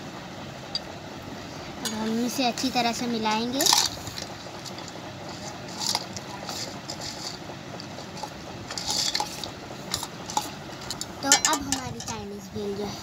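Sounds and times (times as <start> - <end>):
metal spoon stirring fried noodles: 3.2 - 12.1.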